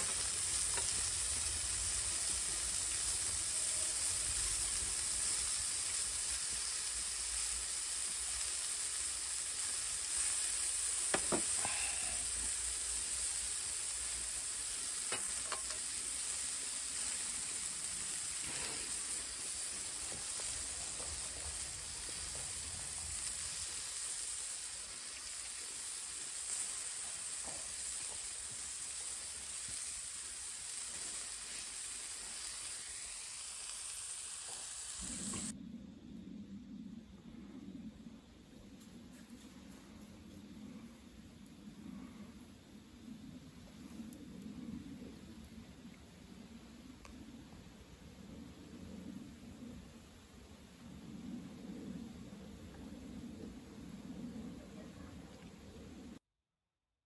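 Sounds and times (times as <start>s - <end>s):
steak sizzling on grill: 0.0s - 35.5s.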